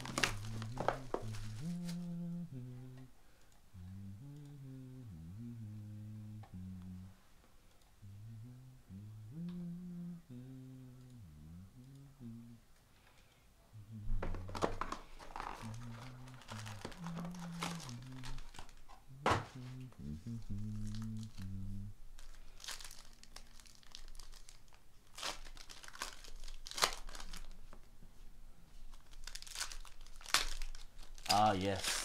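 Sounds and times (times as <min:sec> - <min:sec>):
foil wrappers crinkling and tearing: 0:00.0 - 0:02.0, 0:14.4 - 0:18.9, 0:22.2 - 0:27.8, 0:28.9 - 0:32.0.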